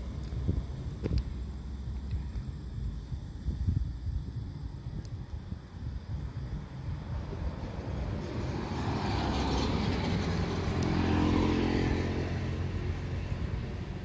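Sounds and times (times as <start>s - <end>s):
vehicle passing by: 6.7s - 14.0s.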